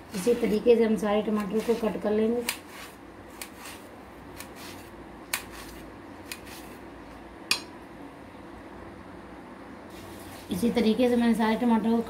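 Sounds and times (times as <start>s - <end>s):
knife clicking on metal plate: 7.5s - 7.7s.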